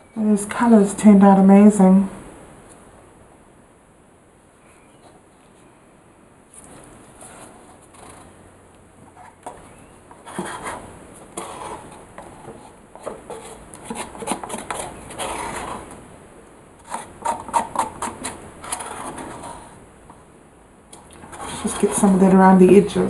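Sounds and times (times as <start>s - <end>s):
paper cup rustling and scraping: 6.5s - 8.4s, 9.1s - 16.0s, 16.8s - 19.8s, 21.2s - 22.2s.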